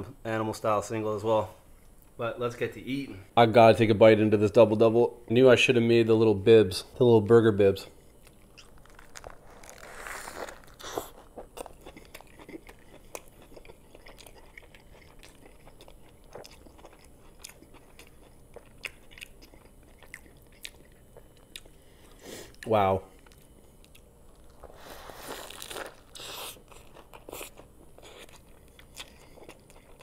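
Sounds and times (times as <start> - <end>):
chewing with soft crunches: 7.9 - 30.0
person biting burger: 8.3 - 14.5, 24.5 - 30.0.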